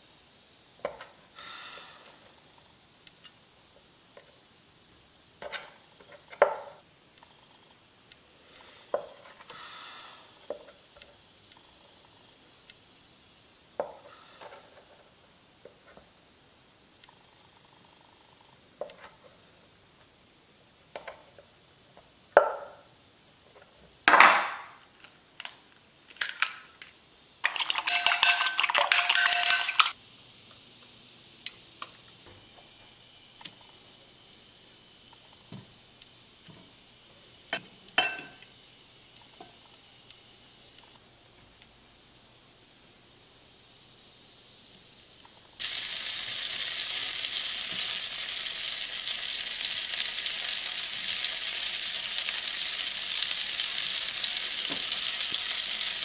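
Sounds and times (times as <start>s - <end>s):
utensil clinking beating egg in bowl: 27.4s - 29.9s
dishes and utensils knocking: 27.6s - 29.9s.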